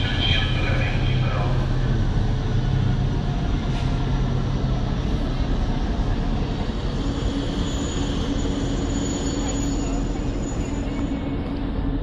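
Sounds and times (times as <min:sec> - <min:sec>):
low hum: 0:00.0 - 0:06.9
steady higher hum: 0:00.0 - 0:06.9
train wheels rumbling on rails: 0:00.0 - 0:12.0.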